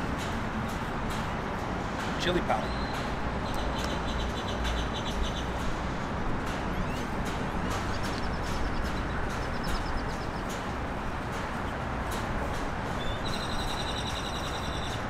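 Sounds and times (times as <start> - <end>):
traffic noise: 0.0 - 15.0
wind: 0.0 - 15.0
high bird chirps: 13.0 - 15.0.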